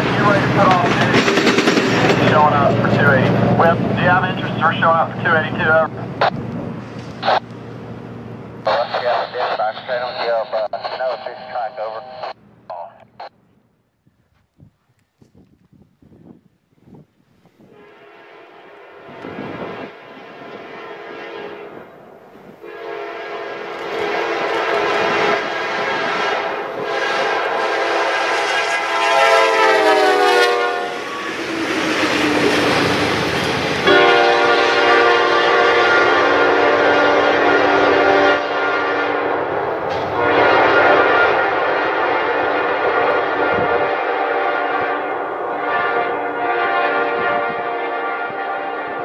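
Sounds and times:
train wheels clattering on rails: 0:00.0 - 0:03.5
diesel locomotive passing: 0:00.0 - 0:14.0, 0:17.6 - 0:49.0
radio voice over scanner: 0:02.2 - 0:05.9, 0:07.2 - 0:07.4, 0:08.7 - 0:13.4
locomotive air horn blowing: 0:17.6 - 0:21.9, 0:22.6 - 0:31.5, 0:33.8 - 0:39.4, 0:40.2 - 0:49.0.

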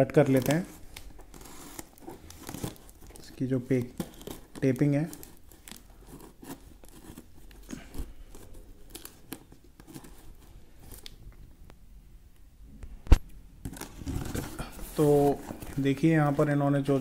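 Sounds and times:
packaging crinkling and rustling: 0:00.0 - 0:11.3, 0:13.6 - 0:17.0.

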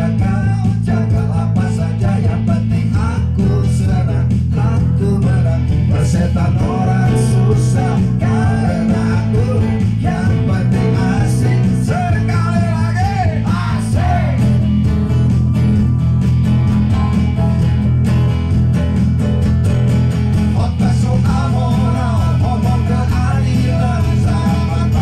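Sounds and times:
person singing: 0:00.0 - 0:14.6, 0:20.5 - 0:25.0
acoustic guitar: 0:00.0 - 0:25.0
bass and beat: 0:00.0 - 0:25.0
keyboard: 0:00.0 - 0:25.0.

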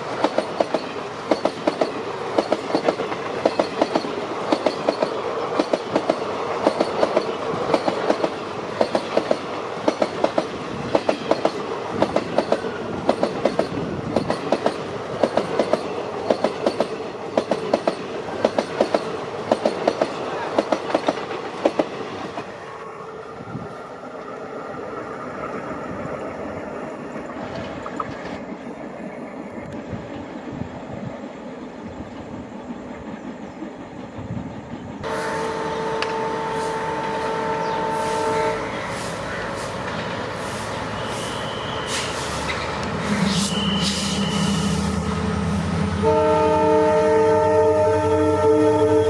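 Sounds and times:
train coaches clickety-clack: 0:00.0 - 0:22.9, 0:23.5 - 0:47.5
train horn chord: 0:35.0 - 0:39.1, 0:43.3 - 0:49.0
locomotive engine drone: 0:35.0 - 0:49.0.

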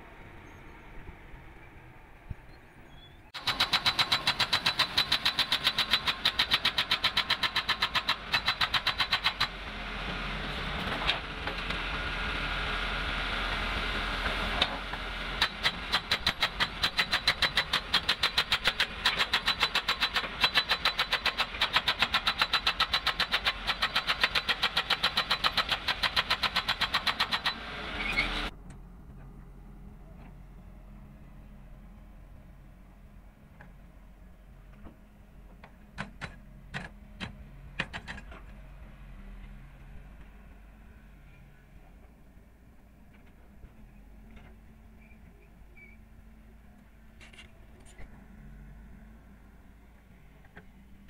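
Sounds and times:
hydraulic breaker hammering rock: 0:03.4 - 0:09.6, 0:14.3 - 0:27.8.

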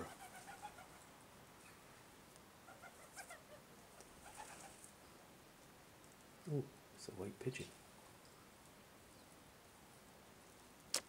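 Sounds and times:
pigeon cooing softly: 0:00.0 - 0:01.0, 0:02.6 - 0:04.9.

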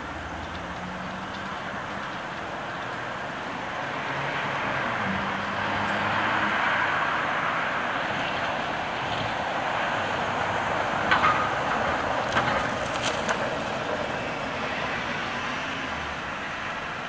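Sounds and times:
city road traffic hum: 0:00.0 - 0:17.0.

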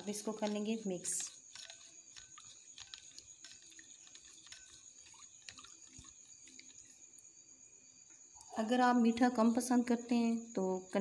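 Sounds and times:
whisk ticking against glass bowl: 0:00.0 - 0:07.0
liquid sloshing: 0:00.0 - 0:07.4.

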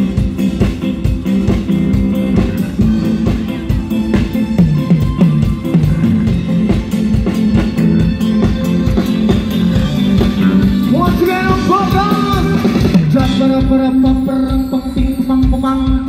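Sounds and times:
live band playing: 0:00.0 - 0:16.0.

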